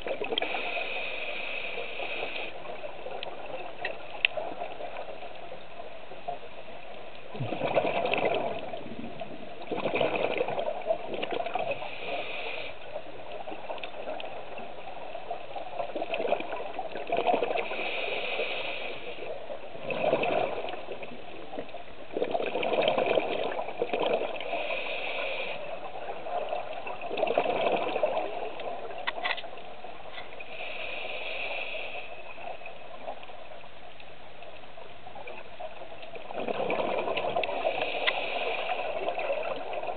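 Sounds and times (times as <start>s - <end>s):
exhaled bubbles gurgling underwater: 0.0s - 39.9s
regulator inhale hiss: 0.4s - 2.8s, 11.7s - 13.0s, 17.5s - 19.4s, 24.4s - 25.9s, 30.4s - 32.5s, 37.5s - 39.1s.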